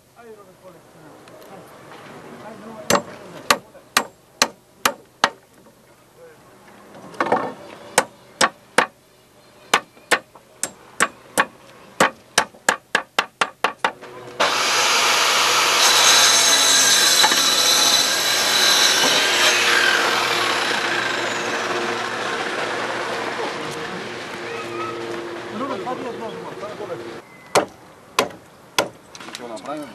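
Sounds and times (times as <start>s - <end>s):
hammer striking wooden board: 2.9s - 5.4s, 7.2s - 9.0s, 9.7s - 14.0s, 27.5s - 29.0s
loud steady noise: 17.3s - 27.2s.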